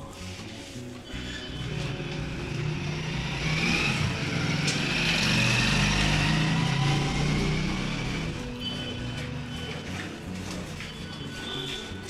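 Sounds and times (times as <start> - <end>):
background music: 0.0 - 12.0
vehicle engine passing by: 1.5 - 10.0.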